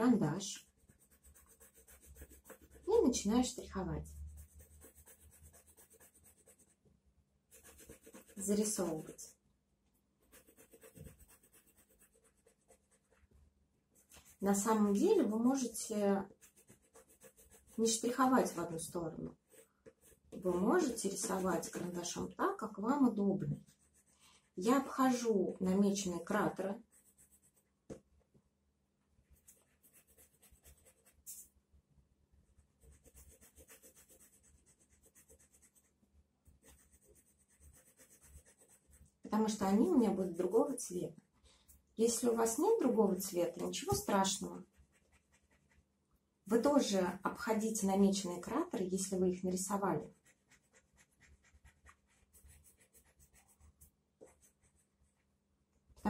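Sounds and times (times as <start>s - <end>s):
pencil scratching on paper: 0.0s - 6.8s, 7.5s - 9.4s, 10.2s - 13.3s, 13.9s - 28.0s, 29.3s - 31.5s, 32.7s - 41.0s, 42.0s - 45.9s, 49.1s - 55.4s.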